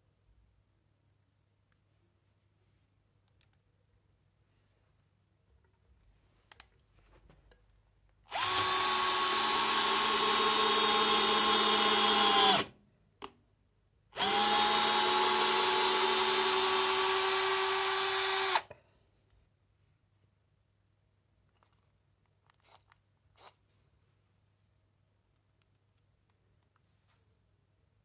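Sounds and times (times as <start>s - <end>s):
cordless drill driving screw: 8.3s - 12.7s, 14.2s - 18.7s.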